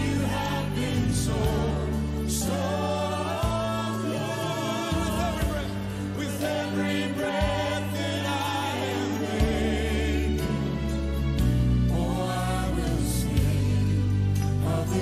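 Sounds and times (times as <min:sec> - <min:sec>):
voices singing held notes: 0:00.0 - 0:11.0.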